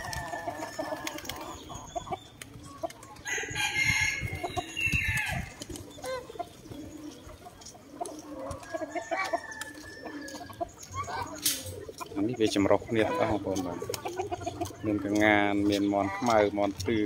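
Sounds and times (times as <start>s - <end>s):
chickens clucking: 0.0s - 17.0s
rooster crowing: 3.3s - 5.5s.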